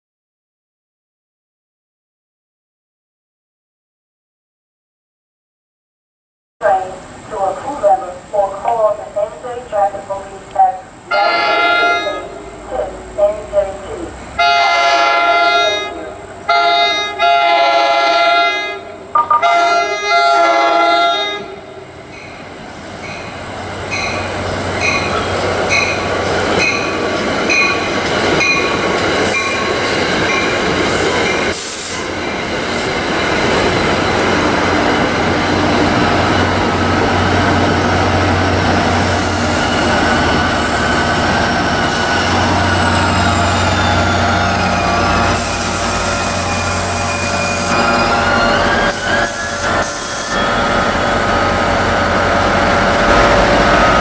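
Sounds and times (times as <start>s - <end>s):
train rumble and wheel clatter: 6.6s - 54.0s
train horn blasts: 11.1s - 12.8s, 14.4s - 21.9s, 43.8s - 54.0s.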